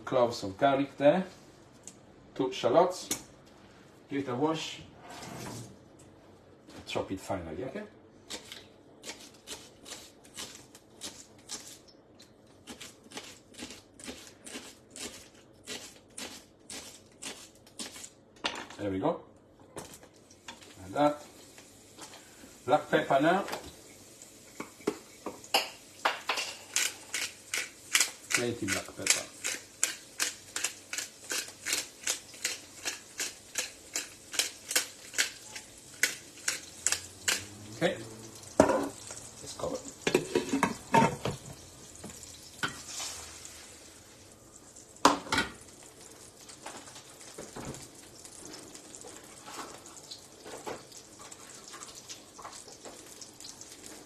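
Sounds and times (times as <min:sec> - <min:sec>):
pepper mill grinding: 0:26.3 - 0:37.6.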